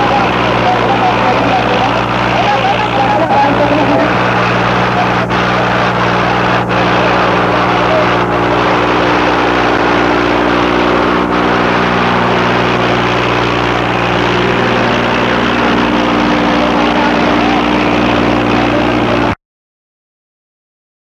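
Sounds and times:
tractor diesel engine under load: 0.0 - 19.4.

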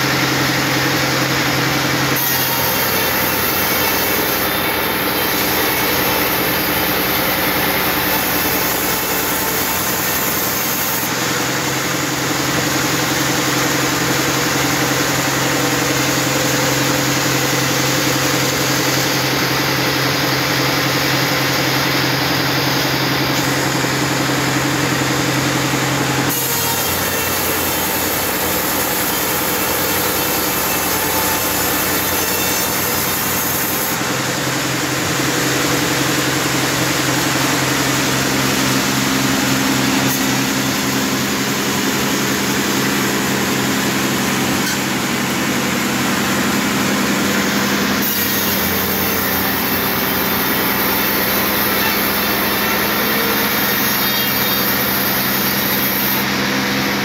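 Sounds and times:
saw blade rasping through wood: 0.0 - 24.2, 24.9 - 35.5, 36.4 - 57.0
machine hum: 0.0 - 57.0.

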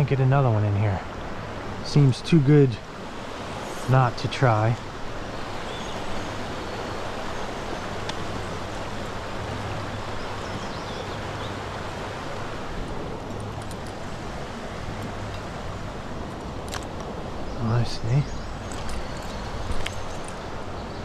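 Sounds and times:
creek water rushing: 0.4 - 21.0.

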